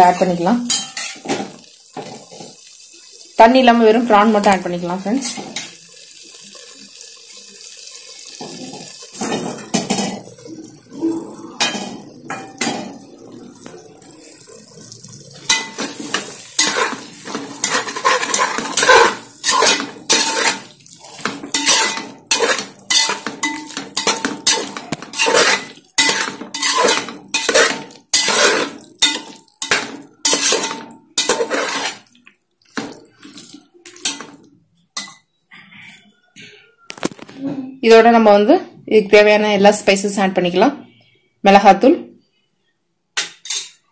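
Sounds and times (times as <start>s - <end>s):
spatula scraping a metal pot: 15.5s - 32.1s.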